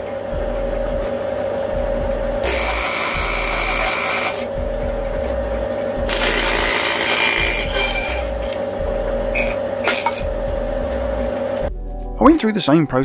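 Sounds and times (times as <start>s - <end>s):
bandsaw humming: 0.0s - 11.7s
bandsaw cutting wood: 2.4s - 4.6s, 6.0s - 8.6s, 9.3s - 10.4s.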